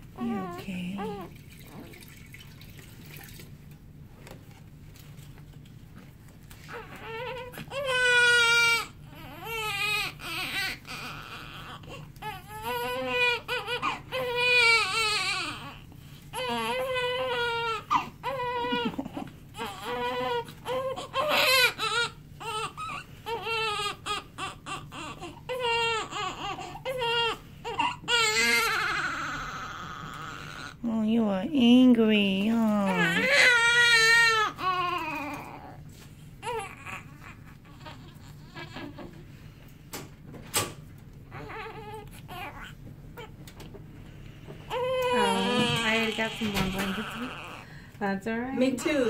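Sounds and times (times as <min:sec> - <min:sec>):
baby crying: 0:06.7 - 0:30.8, 0:32.9 - 0:35.8, 0:36.4 - 0:39.2, 0:41.3 - 0:43.3, 0:44.7 - 0:47.7.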